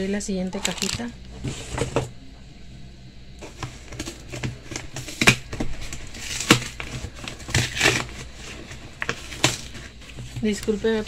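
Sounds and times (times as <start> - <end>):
cardboard box being opened: 3.4 - 11.0
cardboard cracking and ripping: 3.5 - 11.0.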